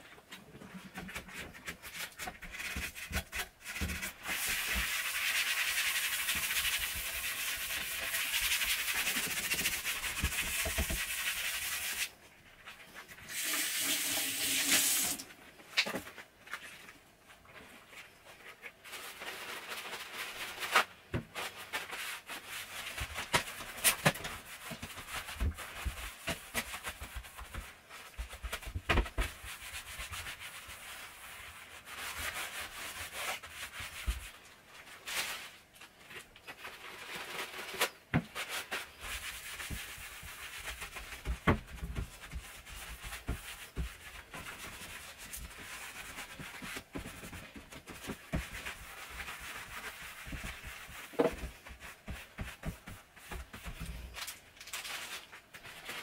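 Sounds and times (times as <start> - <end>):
scrubbing a steel sink: 0.9 - 12.1, 21.4 - 34.4, 38.3 - 53.8.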